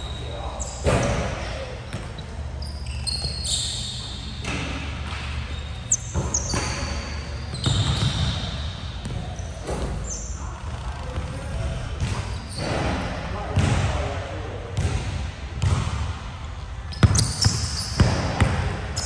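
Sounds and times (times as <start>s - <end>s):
sneakers squeaking: 0.0s - 14.1s, 14.7s - 19.0s
basketball bouncing on hardwood floor: 15.6s - 16.0s, 17.0s - 18.7s.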